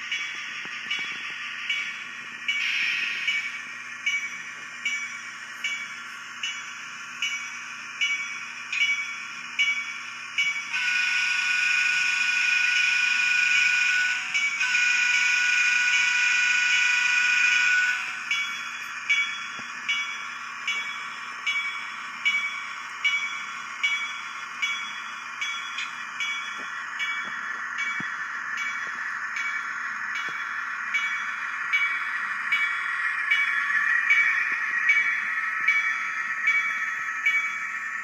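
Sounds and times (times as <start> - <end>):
model locomotive bell ringing: 0.0 - 38.0
locomotive horn blasts: 10.8 - 18.0.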